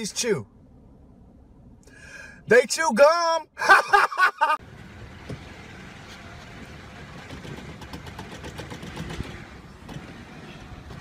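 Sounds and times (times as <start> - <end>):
man laughing shout: 3.5 - 4.6
vehicle engine hum: 3.8 - 11.0.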